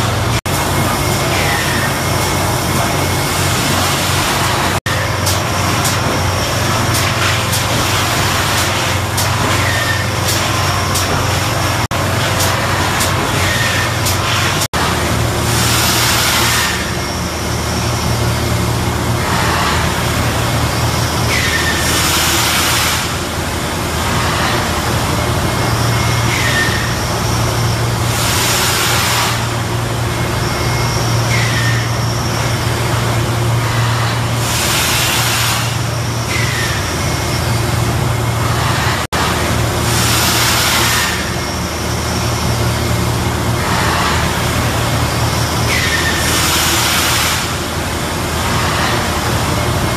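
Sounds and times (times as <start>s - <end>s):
brief falling squeals: 30.6s - 32.0s.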